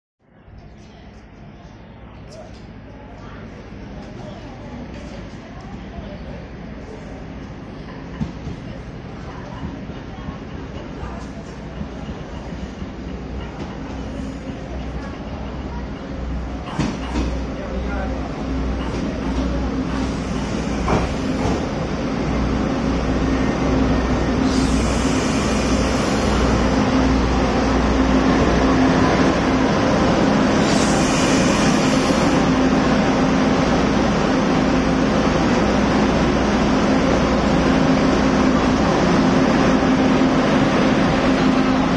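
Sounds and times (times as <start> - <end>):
diesel railcar engine humming: 0.3 - 41.9
short hisses of air: 30.6 - 32.4.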